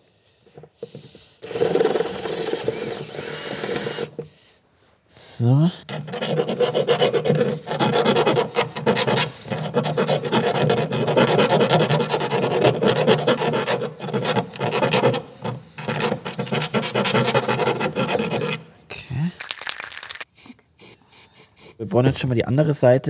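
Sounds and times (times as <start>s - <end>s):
screwdriver rasping on sheet metal: 5.9s - 18.7s.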